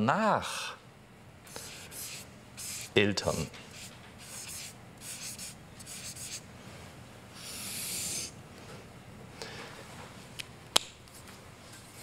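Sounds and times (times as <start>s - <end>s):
marker writing on paper: 1.5s - 6.4s, 7.4s - 8.3s.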